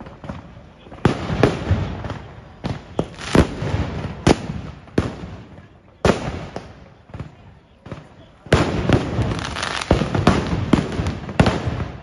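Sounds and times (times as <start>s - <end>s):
fireworks bangs: 0.0s - 12.0s.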